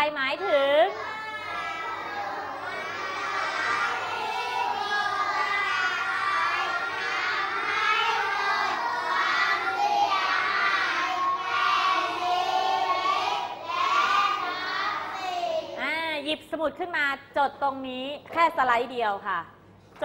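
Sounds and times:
children reciting in unison: 0:00.9 - 0:15.8.

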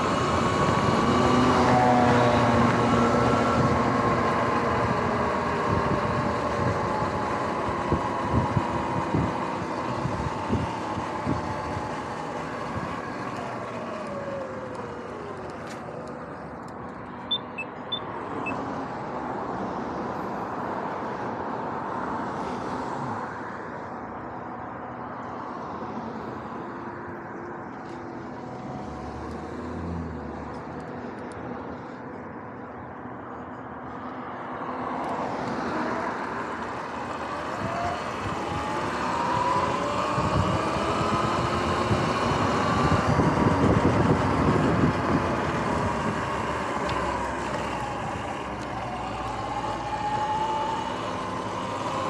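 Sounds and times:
electric motorbike motor whine: 0:00.0 - 0:16.8, 0:35.0 - 0:52.0
passing road traffic: 0:00.0 - 0:52.0.

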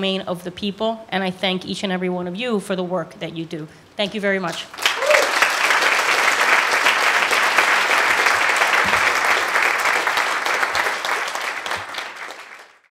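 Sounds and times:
audience applauding: 0:04.7 - 0:12.9.

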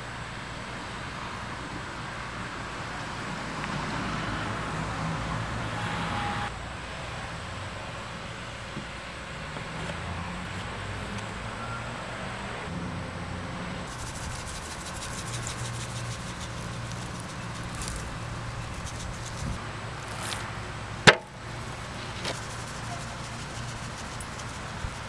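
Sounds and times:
seasoning shaker rattling: 0:13.9 - 0:20.5, 0:21.4 - 0:25.0.

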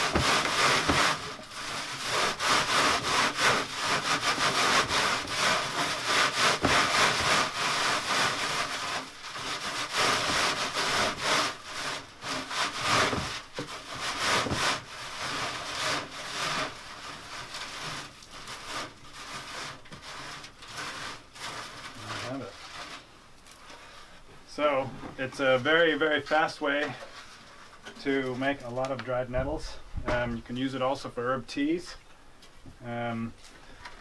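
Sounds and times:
dried leaves rubbed on wire mesh: 0:00.0 - 0:23.1.

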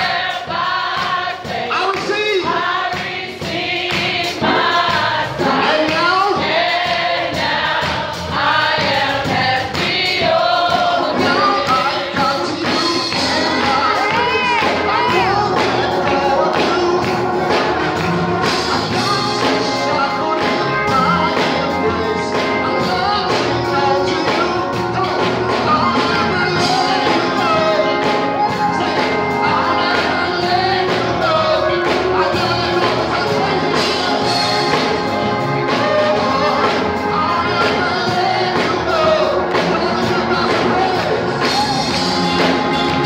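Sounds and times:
instrumental music with beat: 0:00.0 - 0:43.0
man singing through microphone: 0:01.6 - 0:02.6, 0:05.4 - 0:06.5, 0:11.0 - 0:17.8, 0:18.4 - 0:42.6.

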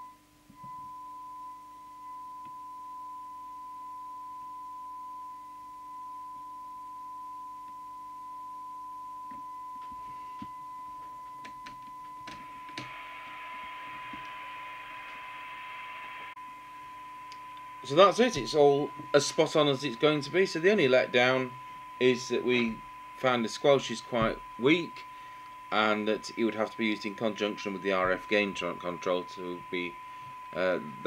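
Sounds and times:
steady test tone: 0:00.0 - 0:31.0
clicks: 0:11.4 - 0:13.0, 0:17.3 - 0:17.7
radio hiss: 0:12.4 - 0:31.0.

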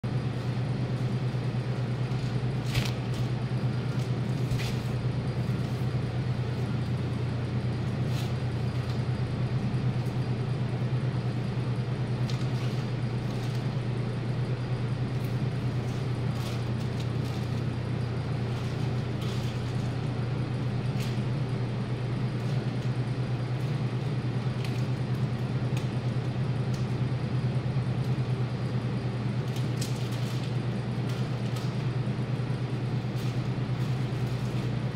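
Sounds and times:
low machine hum: 0:00.0 - 0:34.9.

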